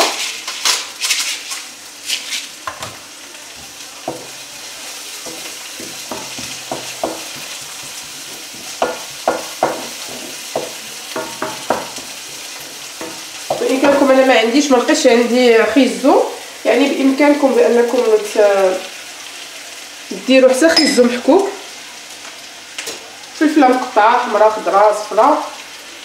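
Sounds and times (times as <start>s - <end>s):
vegetables sizzling in oil: 0.0s - 26.0s
spatula scraping a pan: 3.6s - 14.3s.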